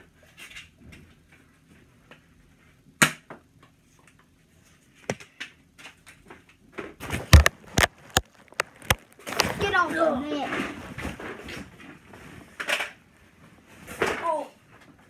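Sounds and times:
sharp clicks and knocks: 7.1s - 9.6s.

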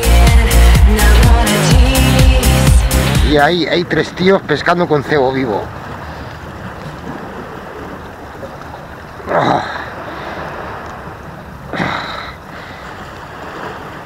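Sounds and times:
sea washing against rocks: 3.2s - 14.0s.

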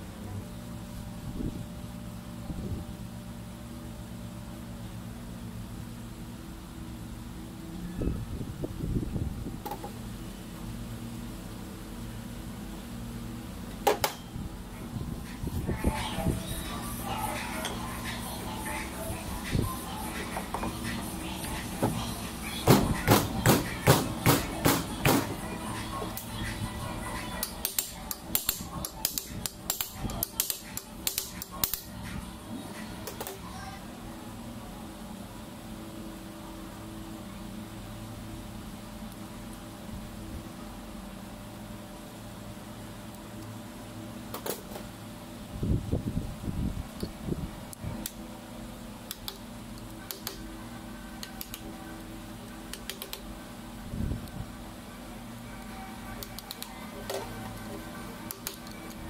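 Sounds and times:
steady hum: 0.0s - 59.0s
metal tool tapping metal: 27.4s - 31.8s.

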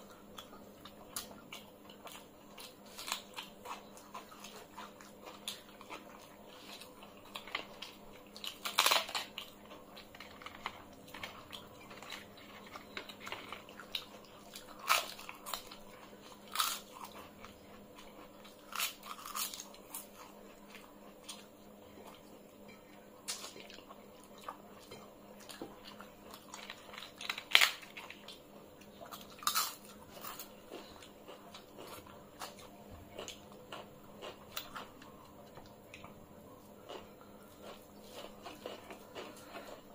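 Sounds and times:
faint steady hum: 0.0s - 39.9s
people chewing food: 0.0s - 39.9s.

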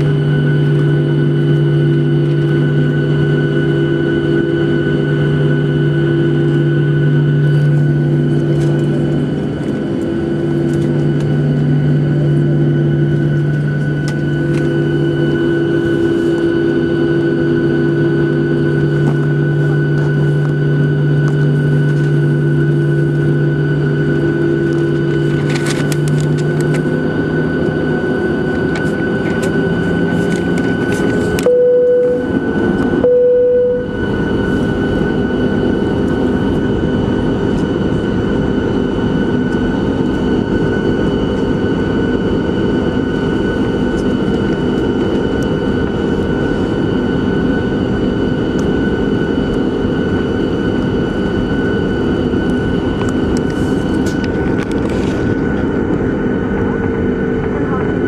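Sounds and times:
jet engine rumble with fan whine: 0.0s - 58.0s
short steady tone: 31.4s - 34.1s.

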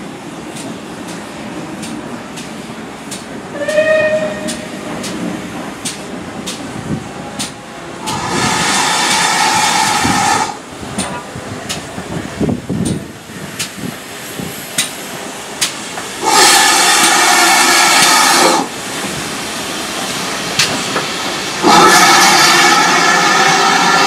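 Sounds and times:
steam locomotive exhaust beats: 0.0s - 24.0s
train coaches rolling: 0.0s - 24.0s
wheels clicking on rails: 0.5s - 6.7s
steam hissing: 6.8s - 24.0s.

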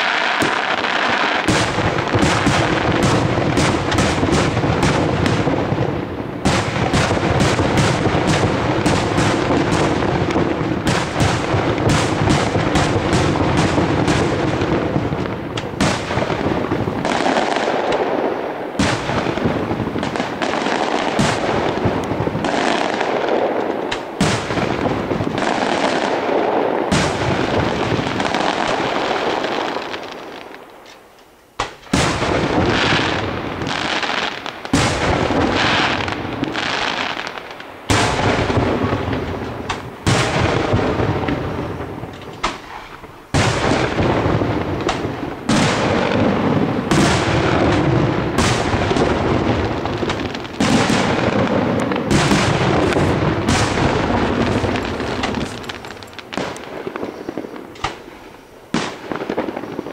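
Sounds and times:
firework shells bursting: 26.9s - 59.9s.

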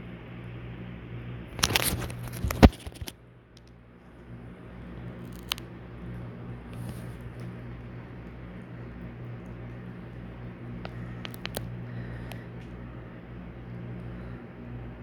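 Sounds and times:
steady low hum: 0.0s - 15.0s
crinkling handling noise: 1.5s - 12.9s.

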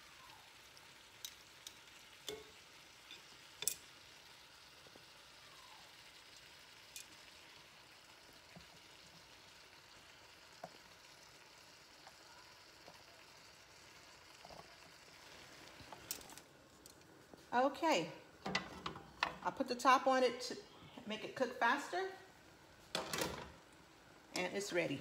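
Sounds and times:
food sizzling in skillet: 0.0s - 20.6s
metal tongs clicking on pan: 1.2s - 3.9s, 6.9s - 7.2s.

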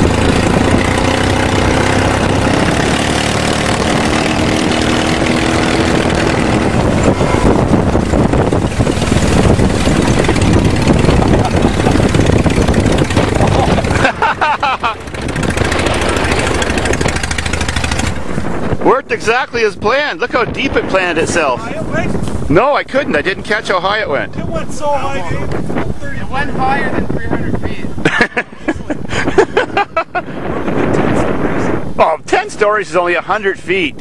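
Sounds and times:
off-road vehicle engine running: 0.0s - 23.8s.

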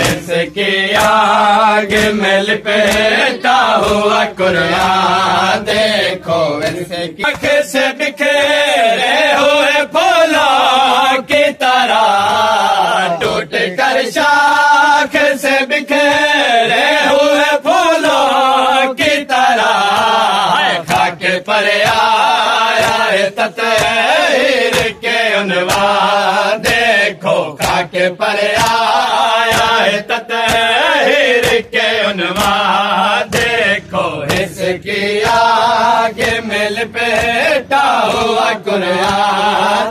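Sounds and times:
hands slapping chests: 0.0s - 7.9s, 19.0s - 39.7s
men chanting in unison: 0.0s - 39.9s.

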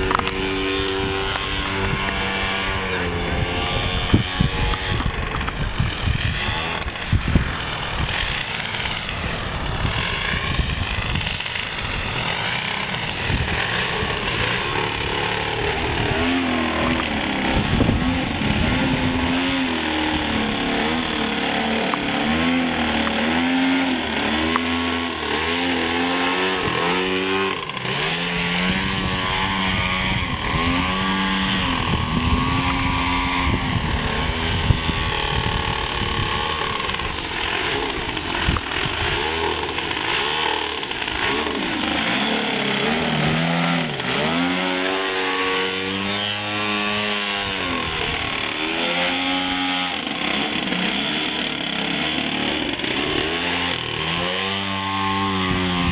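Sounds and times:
model plane engine passing: 0.0s - 55.9s.

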